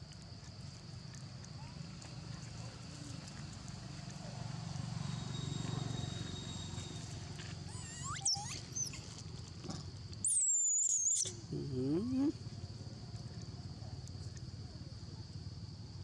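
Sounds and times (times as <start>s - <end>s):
baby monkey squealing: 7.7s - 9.0s, 10.3s - 11.4s.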